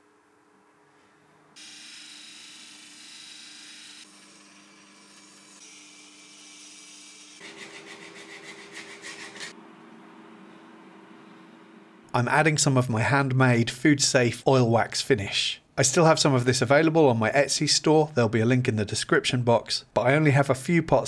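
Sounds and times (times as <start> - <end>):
hand-sanding strokes: 7.4 - 9.6.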